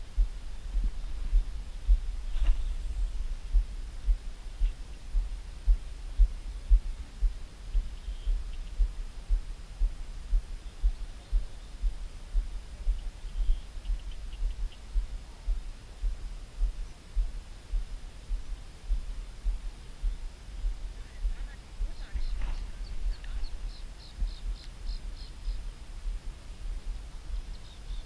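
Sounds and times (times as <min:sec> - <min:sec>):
wind buffeting microphone: 0:00.0 - 0:28.0
faint high chirps: 0:07.6 - 0:09.4, 0:10.4 - 0:15.2, 0:20.0 - 0:26.2.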